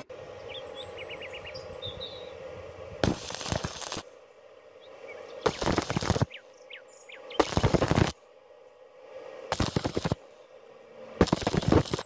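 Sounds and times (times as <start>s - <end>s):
faint birds chirping: 0.0s - 9.5s, 10.2s - 11.5s
welding arc crackling: 3.0s - 4.2s, 5.4s - 6.4s, 7.3s - 8.2s, 9.5s - 10.2s, 11.2s - 12.0s.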